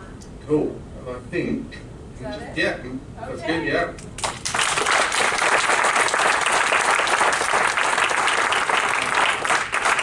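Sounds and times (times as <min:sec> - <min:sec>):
audience applauding: 0:04.2 - 0:10.0.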